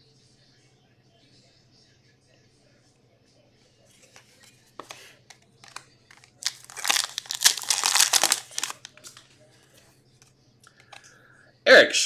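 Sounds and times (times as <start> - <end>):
wrapper crinkling: 5.6 - 9.3.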